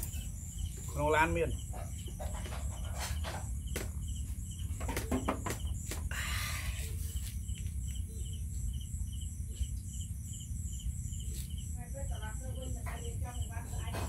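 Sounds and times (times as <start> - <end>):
insects chirping: 0.0 - 14.0
steady low hum: 0.0 - 14.0.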